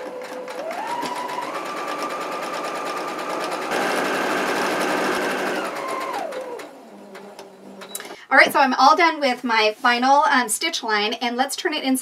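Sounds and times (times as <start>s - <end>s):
sewing machine stitching: 0.0s - 8.1s.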